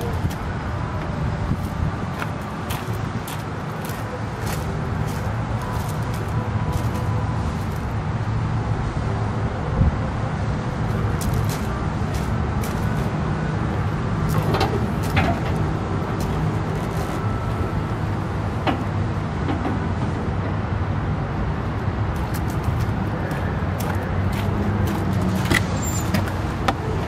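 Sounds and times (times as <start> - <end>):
diesel truck engine idling: 0.0 - 27.0
hood creaking and rattling: 14.2 - 20.1, 22.2 - 27.0.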